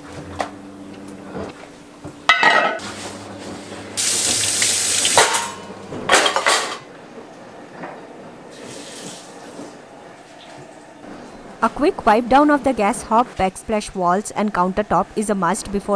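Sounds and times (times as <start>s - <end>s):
tap water running into sink: 4.0s - 5.5s.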